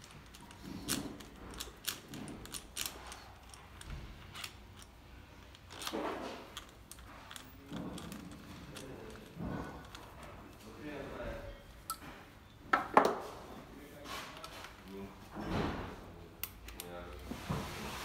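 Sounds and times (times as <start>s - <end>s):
soft scrapes: 13.2s - 15.2s.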